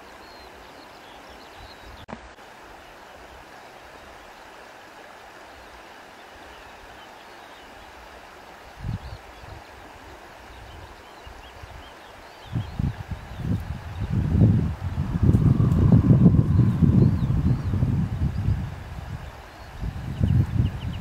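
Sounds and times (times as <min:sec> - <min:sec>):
flowing water rushing: 0:00.0 - 0:21.0
wind buffeting microphone: 0:08.8 - 0:09.8, 0:11.6 - 0:21.0.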